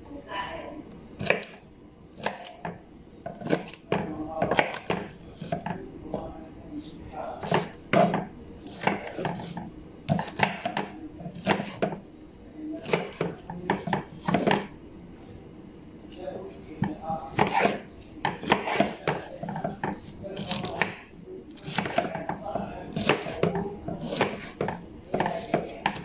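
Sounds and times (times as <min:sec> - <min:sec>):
knife chopping on wooden board: 0:01.2 - 0:01.6, 0:02.2 - 0:05.7, 0:07.4 - 0:12.0, 0:12.8 - 0:14.7, 0:16.8 - 0:26.0.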